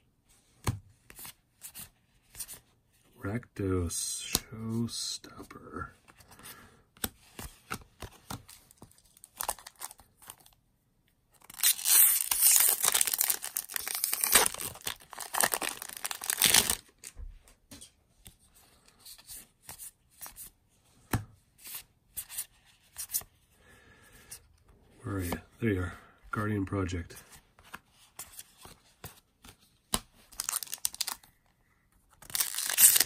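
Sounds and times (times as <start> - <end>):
foil wrapper tearing and crinkling: 11.4 - 16.9, 30.4 - 31.2, 32.2 - 33.0.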